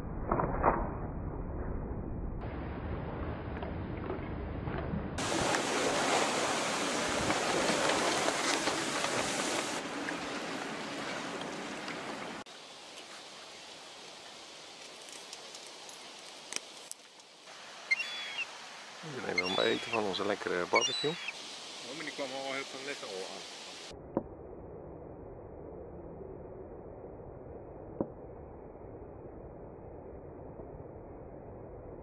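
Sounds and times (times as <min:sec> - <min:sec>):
wind and water rushing: 0:05.1 - 0:14.9, 0:17.4 - 0:23.9.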